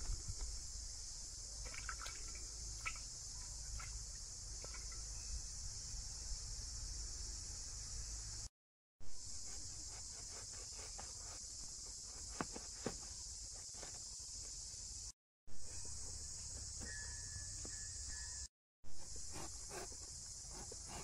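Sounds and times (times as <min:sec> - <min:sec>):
insects droning: 0:00.0 - 0:08.5, 0:09.1 - 0:21.0
knife cutting jackfruit: 0:09.5 - 0:14.0, 0:19.1 - 0:21.0.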